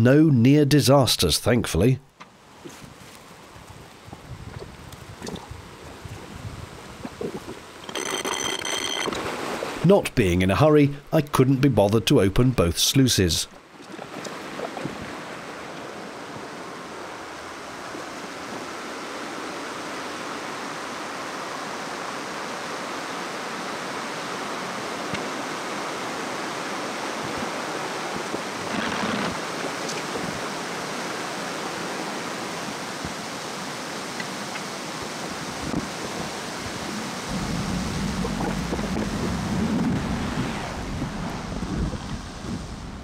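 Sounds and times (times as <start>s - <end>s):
water rushing through sluice: 13.6s - 41.6s.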